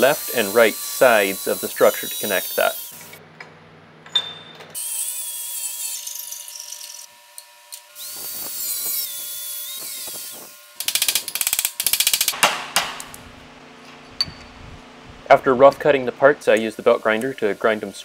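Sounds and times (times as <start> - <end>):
angle grinder cutting steel: 0.0 - 3.2, 4.8 - 12.4.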